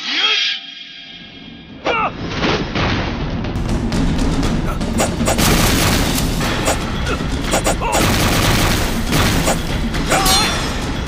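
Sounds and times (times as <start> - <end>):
explosion booms and blasts: 2.6 - 10.1
dramatic music: 2.8 - 11.0.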